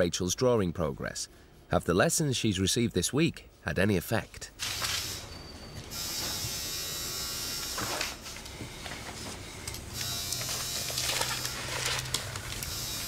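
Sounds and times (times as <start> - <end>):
tattoo machine buzzing: 4.6 - 8.6, 9.6 - 11.7, 12.6 - 13.0
paper rustling: 10.0 - 13.0.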